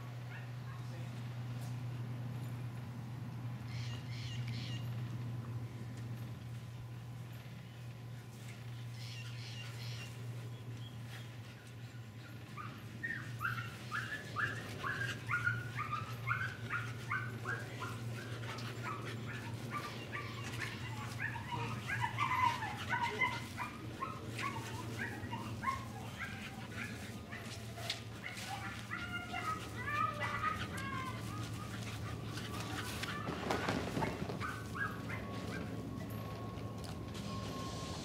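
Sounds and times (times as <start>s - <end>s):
dog yelping and whining: 12.2s - 36.5s.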